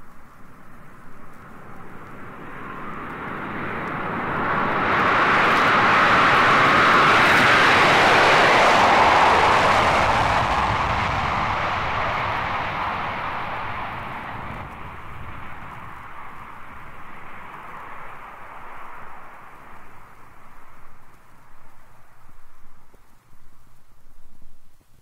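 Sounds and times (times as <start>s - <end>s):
jet airliner taking off: 0.0s - 22.6s.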